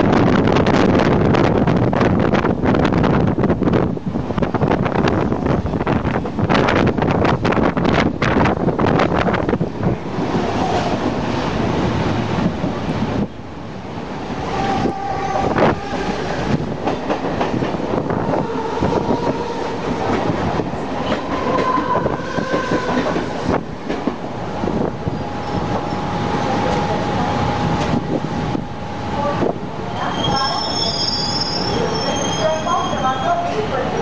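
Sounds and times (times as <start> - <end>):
passing train: 0.0 - 34.0
train wheels roaring on rails: 0.0 - 34.0
wheel squeals: 30.0 - 34.0.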